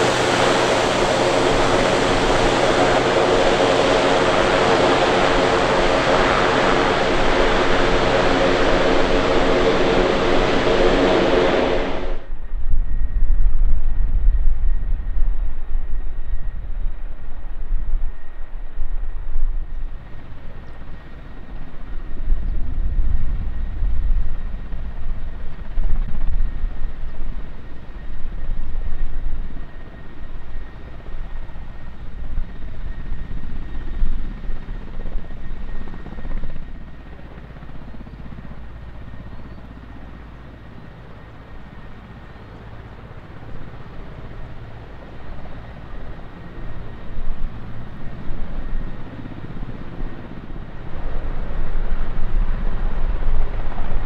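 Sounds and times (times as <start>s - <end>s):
helicopter rotor chopping: 0.0s - 12.3s, 32.4s - 54.0s
turbine engine whine: 0.0s - 54.0s.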